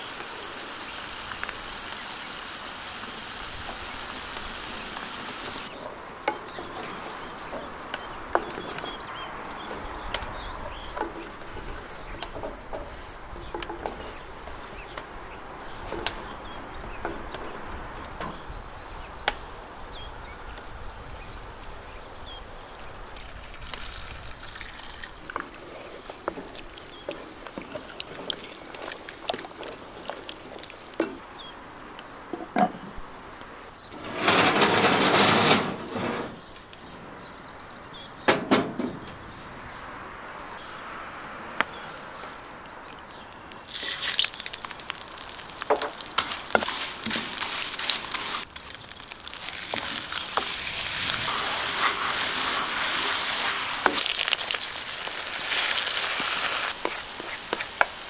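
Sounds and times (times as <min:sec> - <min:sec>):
wooden spoon stirring pot: 0:05.8 - 0:16.0, 0:24.4 - 0:31.2, 0:43.7 - 0:58.0
oil pouring into pan: 0:23.2 - 0:25.4, 0:43.7 - 0:57.0.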